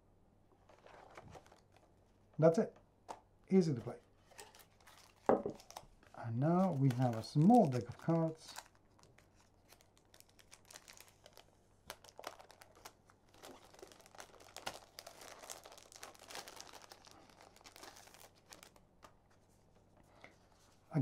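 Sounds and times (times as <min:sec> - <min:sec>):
plastic wrapping crinkling: 0:00.6 - 0:01.9, 0:04.2 - 0:19.3.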